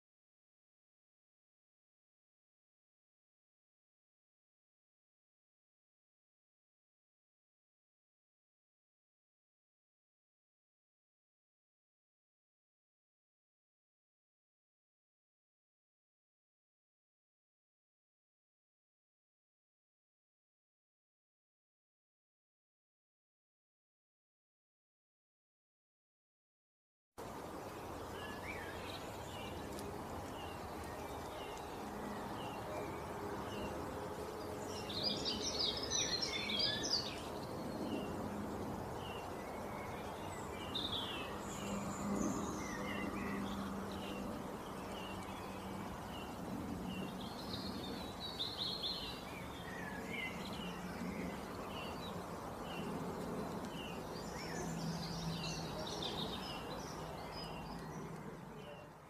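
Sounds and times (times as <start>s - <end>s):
birds chirping and singing: 27.6s - 38.3s, 39.0s - 59.0s.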